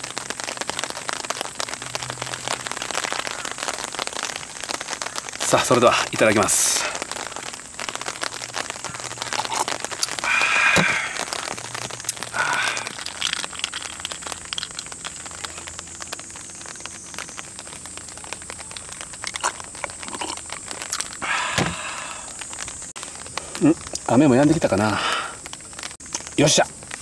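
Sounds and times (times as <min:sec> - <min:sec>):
light rain dripping: 0:00.0 - 0:27.0
person gulping a drink: 0:08.9 - 0:15.7, 0:18.7 - 0:22.4, 0:23.5 - 0:24.1.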